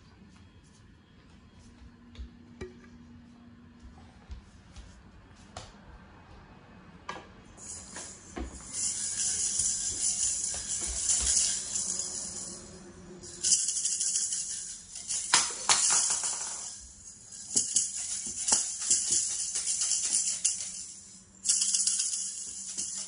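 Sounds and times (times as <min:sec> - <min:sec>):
toy maracas rattling: 0:07.6 - 0:23.0.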